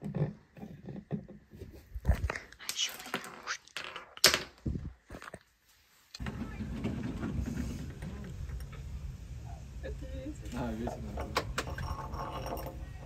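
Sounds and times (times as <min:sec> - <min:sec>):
wind rumble on microphone: 0:04.6 - 0:05.0.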